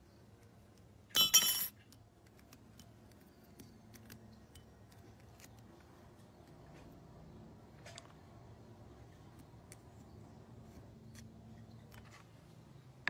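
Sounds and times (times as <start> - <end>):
metallic clink and rattle: 1.1 - 2.0.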